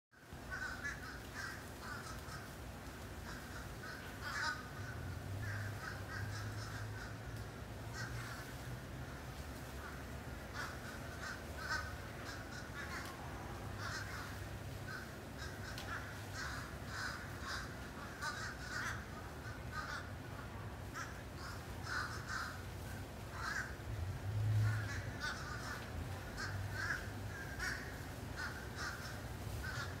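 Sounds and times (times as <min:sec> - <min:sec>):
flock of birds calling: 0:00.3 - 0:30.0
low steady rumble: 0:00.4 - 0:30.0.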